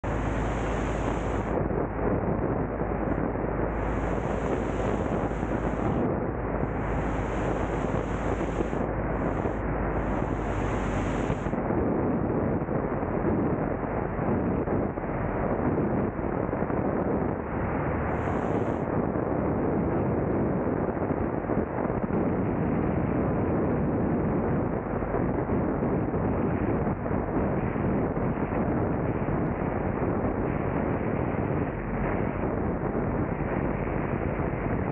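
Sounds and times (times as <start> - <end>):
wind buffeting microphone: 0.0 - 34.9
high hiss: 6.6 - 11.5.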